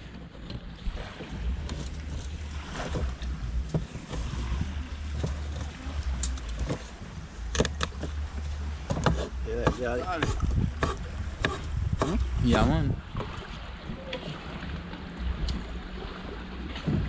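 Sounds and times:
surf: 0.0 - 17.0
wind: 0.0 - 17.0.

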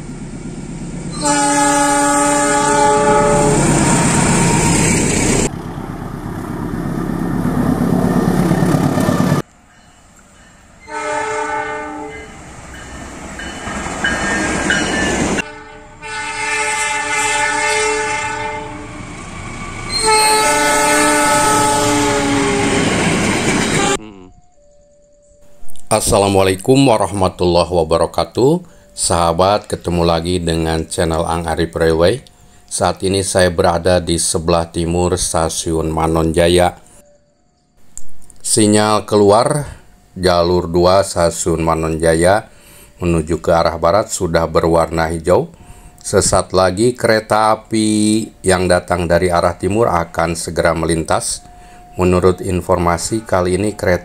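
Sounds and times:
train rumble and wheel clatter: 0.0 - 24.1, 25.5 - 37.1, 43.0 - 54.0
train horn blasts: 1.1 - 5.0, 10.8 - 12.4, 15.4 - 19.0, 19.9 - 23.0, 23.7 - 24.3.

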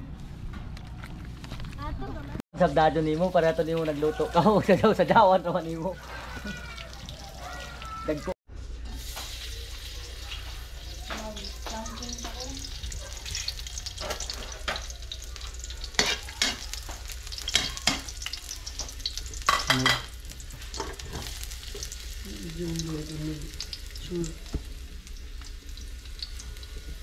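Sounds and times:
aromatics sizzling in oil: 2.7 - 27.0
spatula scraping a metal wok: 15.9 - 16.6.

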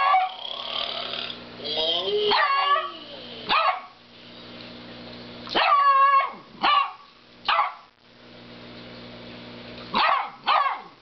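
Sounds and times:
dog barking and yowling: 0.0 - 0.4, 2.0 - 4.0, 5.6 - 7.9, 10.0 - 11.0.

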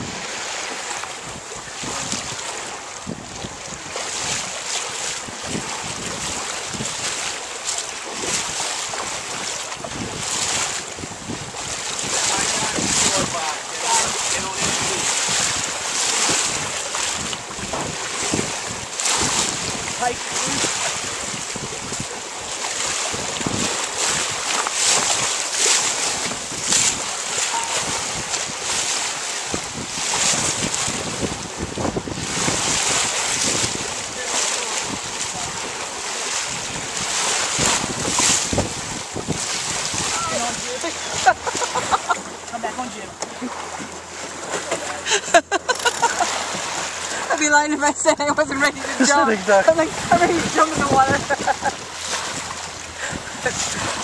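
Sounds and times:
wind on microphone: 0.0 - 7.4, 8.0 - 42.5, 46.1 - 54.0
water splashing along hull: 0.0 - 54.0
low wind thumps: 8.1 - 42.5, 46.1 - 54.0.

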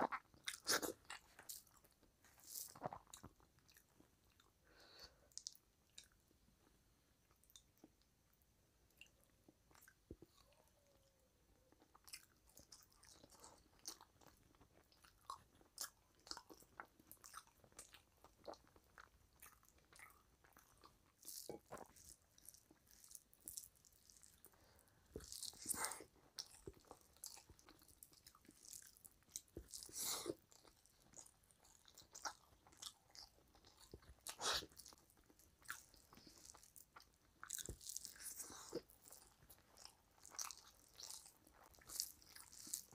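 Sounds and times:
person chewing: 0.0 - 6.3, 11.7 - 42.9.

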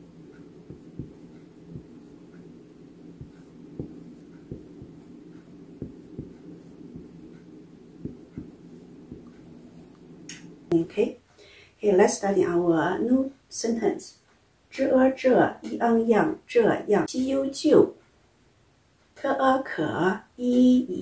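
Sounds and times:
faint low hum: 0.0 - 18.0
soft taps and clicks: 0.3 - 10.8.

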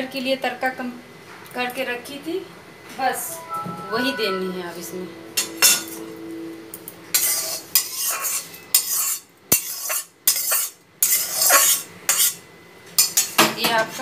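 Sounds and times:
spoon scraping: 7.1 - 12.4.

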